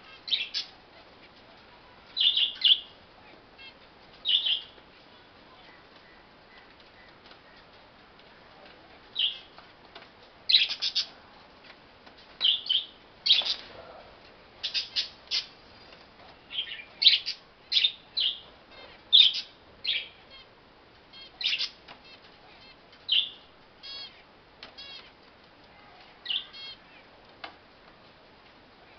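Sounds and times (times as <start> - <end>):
finches chirping: 0.0 - 0.8, 2.1 - 2.9, 3.6 - 4.8, 10.5 - 11.2, 14.6 - 15.9, 16.5 - 20.5, 21.1 - 25.1, 26.2 - 27.1.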